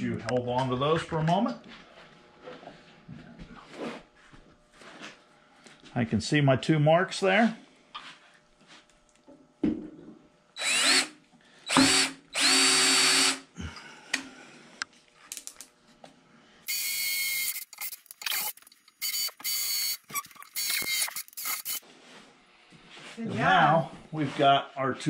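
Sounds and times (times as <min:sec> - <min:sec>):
cordless drill boring into metal: 0:10.6 - 0:13.4, 0:16.7 - 0:21.8.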